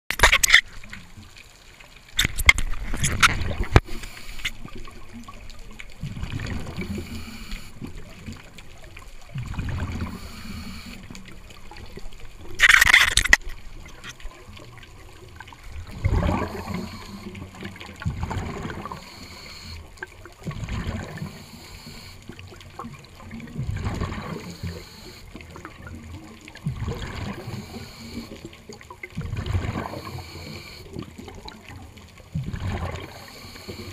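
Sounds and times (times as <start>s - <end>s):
bubbling regulator exhalations: 9.4s - 11.1s, 15.8s - 19.9s, 29.2s - 31.4s
regulator hiss: 10.0s - 11.0s, 18.9s - 19.8s.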